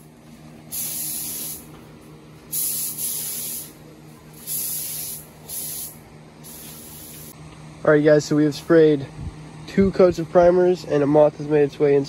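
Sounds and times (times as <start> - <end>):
steady low hum: 0.0 - 12.0
compressed air hissing from air gun: 0.7 - 1.7, 2.5 - 7.4.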